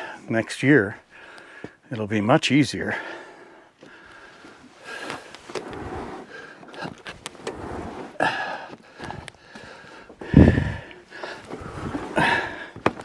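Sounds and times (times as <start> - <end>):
man breathing hard: 1.1 - 1.8, 2.9 - 7.0, 8.1 - 13.0
sled knocking on wooden boards: 8.7 - 13.0.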